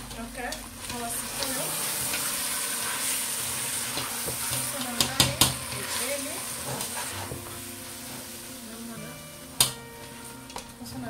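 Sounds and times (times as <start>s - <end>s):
sauce sizzling in a pot: 0.0s - 11.0s.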